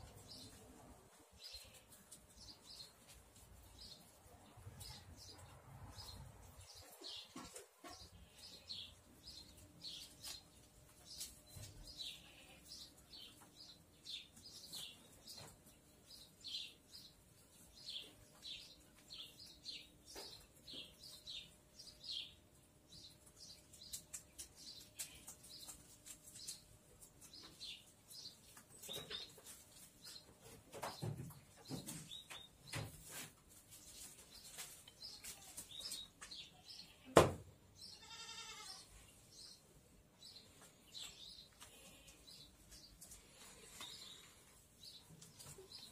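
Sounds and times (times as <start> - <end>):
small birds chirping: 0.0 - 45.9
rustling: 23.6 - 36.4.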